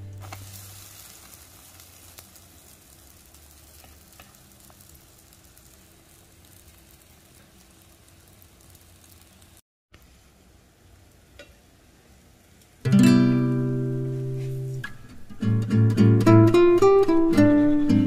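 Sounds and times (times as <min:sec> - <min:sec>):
small pops: 0:00.2 - 0:07.7
butter sizzling in a frying pan: 0:00.2 - 0:14.8.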